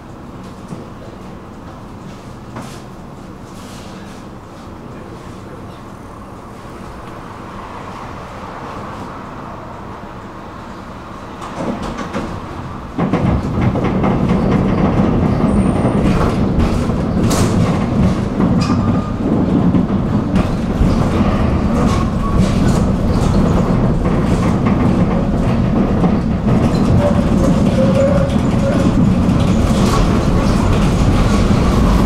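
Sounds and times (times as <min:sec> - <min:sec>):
tram rumbling on rails: 0:00.0 - 0:32.0.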